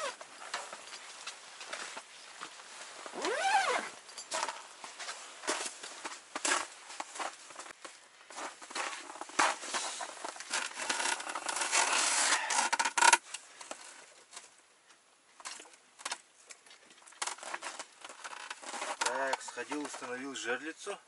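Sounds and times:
padded jacket rustling: 0.0s - 4.0s.

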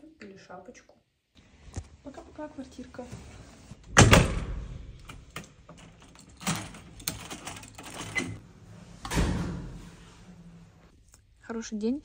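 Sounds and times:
key turning in a lock: 5.0s - 8.4s.

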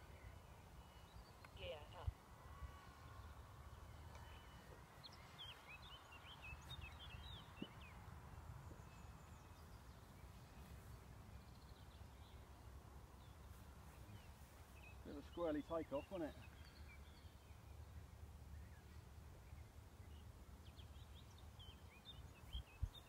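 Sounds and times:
wind rumble on microphone: 22.5s - 23.0s.

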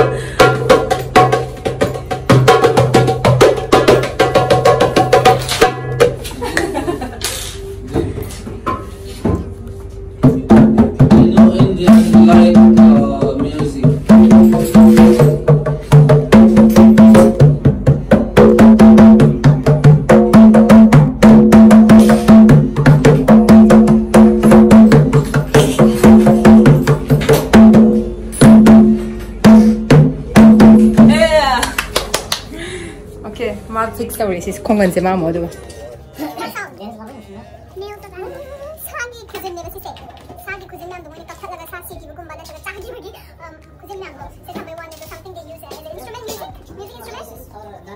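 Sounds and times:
hand drumming on barrel drums: 0.0s - 6.3s, 10.2s - 31.4s.

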